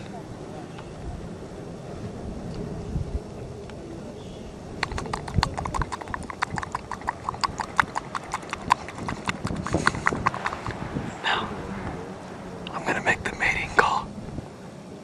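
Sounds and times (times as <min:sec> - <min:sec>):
person clicking tongue: 0:04.8 - 0:10.8.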